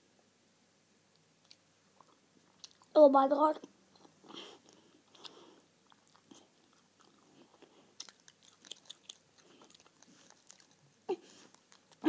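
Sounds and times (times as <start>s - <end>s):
chewing gum: 1.4s - 2.9s, 3.9s - 12.0s
wet mouth clicks: 4.0s - 10.8s
soft breathing: 4.2s - 5.7s, 11.1s - 11.7s.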